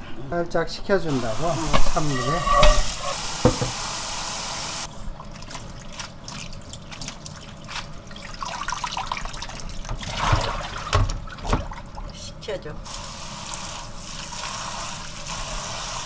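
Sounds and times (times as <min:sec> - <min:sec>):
water sloshing and splashing: 0:04.9 - 0:12.2.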